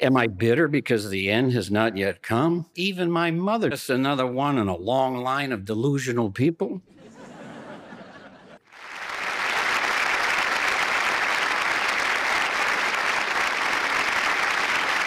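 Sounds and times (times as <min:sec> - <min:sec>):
audience applauding: 0:08.6 - 0:15.0.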